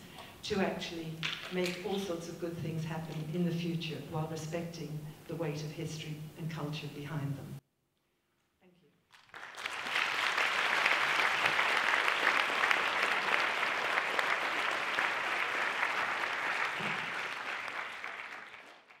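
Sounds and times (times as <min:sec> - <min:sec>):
audience applauding: 0:09.1 - 0:19.0.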